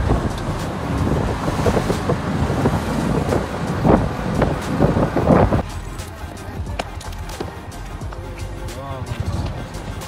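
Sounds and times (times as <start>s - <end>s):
wind buffeting microphone: 0.0s - 5.6s
road rumble: 0.0s - 10.0s.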